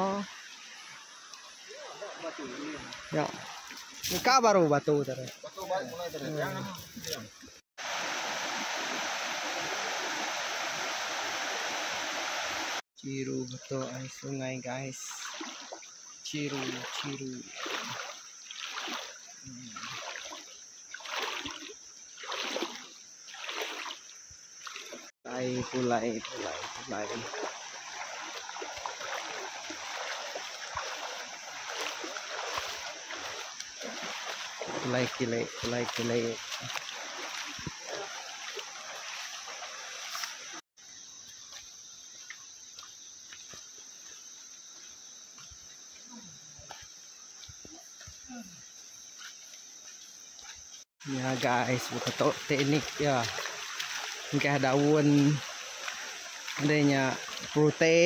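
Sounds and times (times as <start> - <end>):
footsteps splashing in water: 1.2 - 7.6, 15.0 - 40.6, 41.4 - 48.2, 49.2 - 58.0
stream rushing over rocks: 7.8 - 12.8, 25.3 - 40.6, 51.1 - 58.0
high insect chirring: 13.3 - 58.0.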